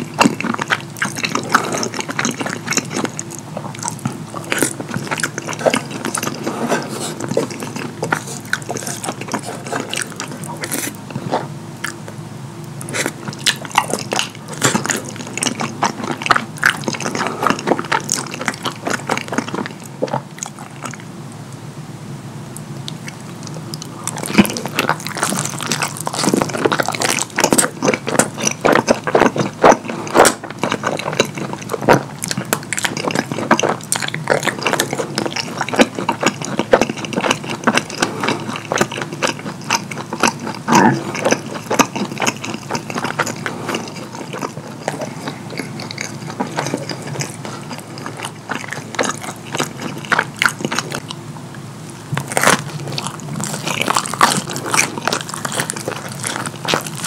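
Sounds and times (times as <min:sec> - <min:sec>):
wet chewing and lip smacking: 0:00.0 - 0:21.1, 0:22.6 - 0:57.0.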